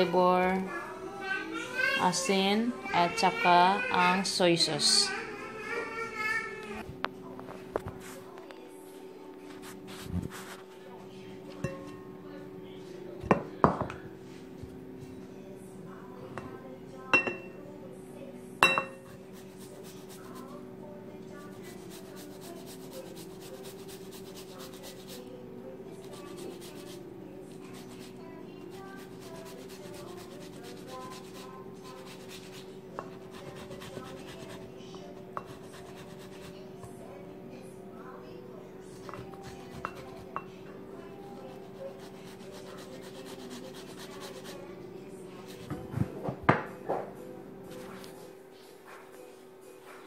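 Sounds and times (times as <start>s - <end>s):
grater clinking against bowl: 21.5s - 25.2s, 27.7s - 34.6s, 35.3s - 36.6s, 39.0s - 40.5s
lemon rind grating: 21.6s - 25.2s, 26.0s - 27.0s, 27.6s - 32.7s, 41.8s - 44.6s.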